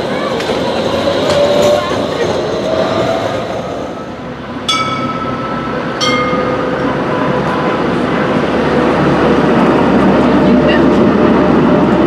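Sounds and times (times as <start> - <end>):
tram rumbling with whine: 0.0 - 12.0
tram bell dings: 4.6 - 8.6.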